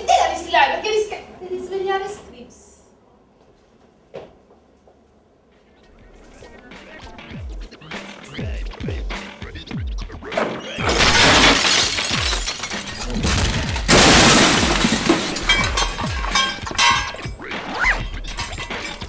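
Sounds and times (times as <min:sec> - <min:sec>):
electronic music with deep beat: 0:05.8 - 0:10.9, 0:17.1 - 0:19.0
crashing shattering noise: 0:10.4 - 0:19.0.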